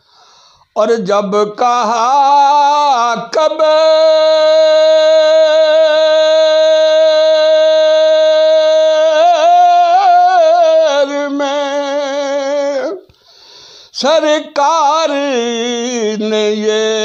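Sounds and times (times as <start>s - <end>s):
man singing unaccompanied: 0.8s - 13.2s, 13.9s - 17.0s.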